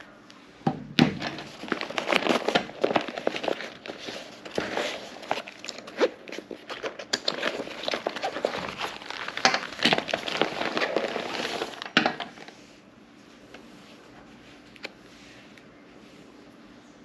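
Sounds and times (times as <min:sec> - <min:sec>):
nylon bag rustling and crinkling: 0:01.2 - 0:12.5.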